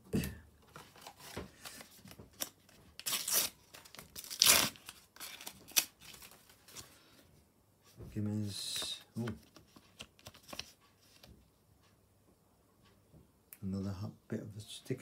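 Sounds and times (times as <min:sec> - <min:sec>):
wrapper tearing and crinkling: 0:02.4 - 0:06.4.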